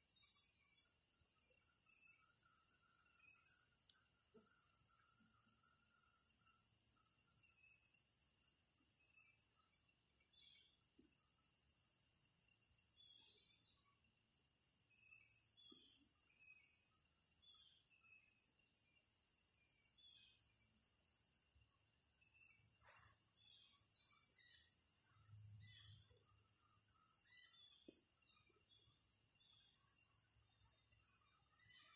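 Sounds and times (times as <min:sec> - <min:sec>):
insects chirring: 0:10.3 - 0:31.9.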